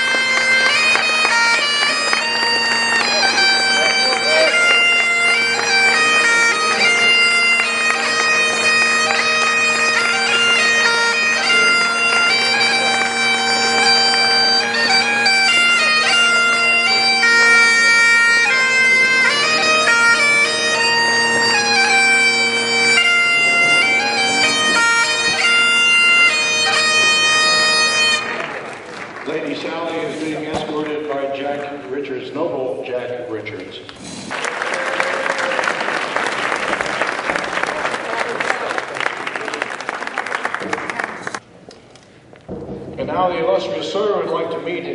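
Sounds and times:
bagpipe playing: 0.0s - 29.0s.

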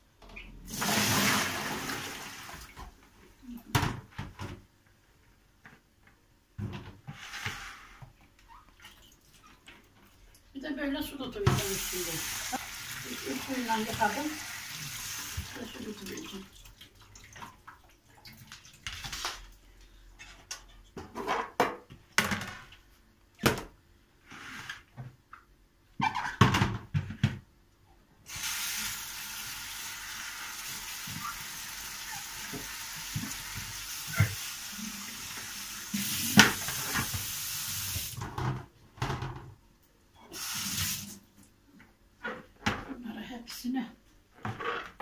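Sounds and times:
kitchen tap running: 11.5s - 17.5s, 28.3s - 38.2s, 40.3s - 41.2s.

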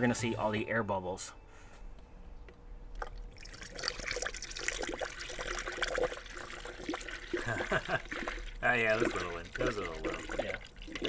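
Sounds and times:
liquid pouring into funnel: 3.0s - 11.0s.

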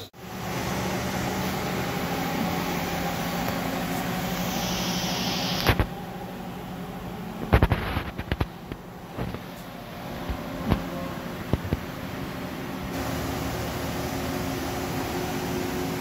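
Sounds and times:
lathe humming and hissing: 0.2s - 6.2s.

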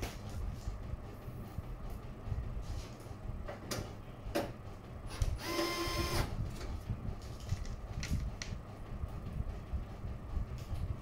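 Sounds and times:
low steady rumble: 0.0s - 11.0s
small motor whirring: 5.4s - 6.3s.

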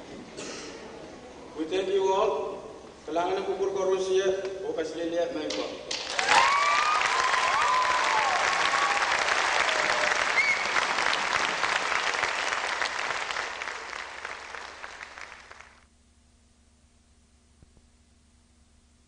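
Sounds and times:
audience applauding: 5.9s - 15.8s
people cheering: 6.0s - 15.8s.

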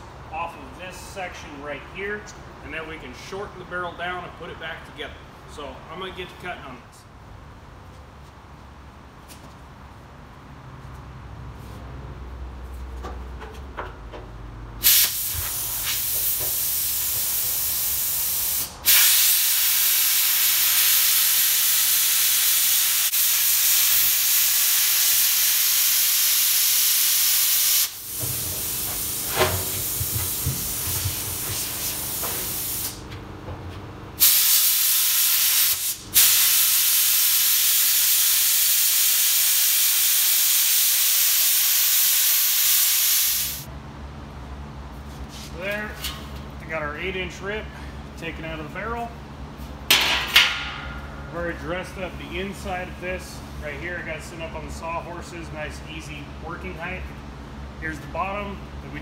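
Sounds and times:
plasma cutter hissing: 14.8s - 33.0s, 34.2s - 43.7s.

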